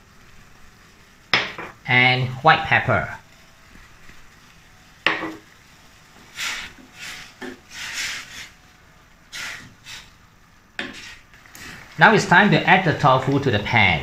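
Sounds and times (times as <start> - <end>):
spatula stirring in a steel pan: 6.2 - 8.6, 9.3 - 10.1, 10.8 - 11.9.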